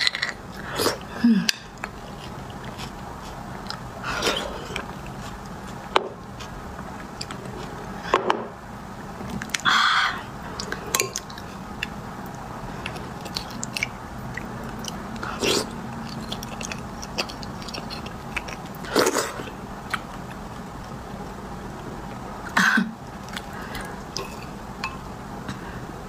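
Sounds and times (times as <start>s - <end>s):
chewing and sucking bone marrow: 1.7s - 7.9s, 10.5s - 21.3s.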